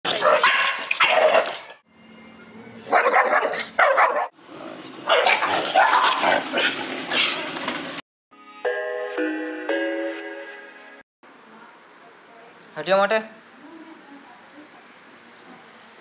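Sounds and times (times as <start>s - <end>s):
dogs barking: 0.1s - 1.7s, 2.9s - 7.5s.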